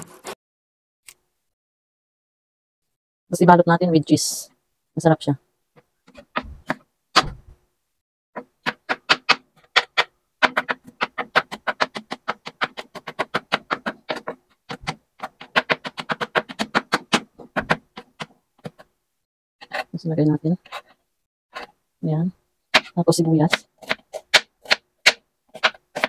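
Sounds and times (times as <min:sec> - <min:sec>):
knife chopping on cutting board: 0:08.4 - 0:18.9, 0:22.8 - 0:26.0.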